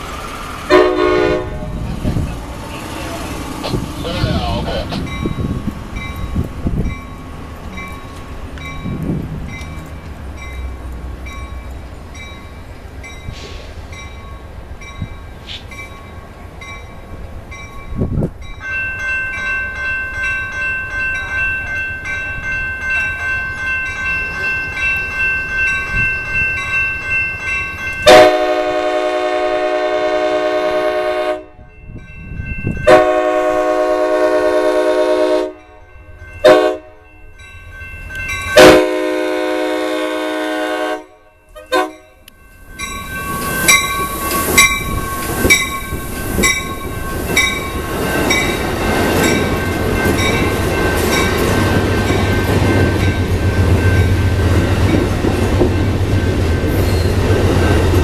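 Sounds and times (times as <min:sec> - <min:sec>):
train rushing past: 0:00.0 - 0:58.0
train horn: 0:00.7 - 0:01.9, 0:28.1 - 0:31.6, 0:32.9 - 0:37.0, 0:38.6 - 0:42.0.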